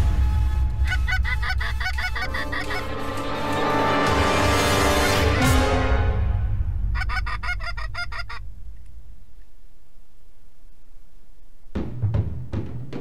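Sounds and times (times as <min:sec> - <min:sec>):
music with drum hits: 0:00.0 - 0:07.0, 0:11.7 - 0:13.0
goose honks: 0:00.8 - 0:04.0.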